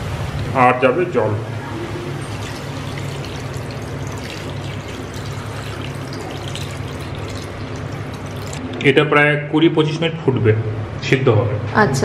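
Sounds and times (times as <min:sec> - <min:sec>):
steady low hum: 0:00.0 - 0:12.0
water pouring into metal pot: 0:01.9 - 0:08.6.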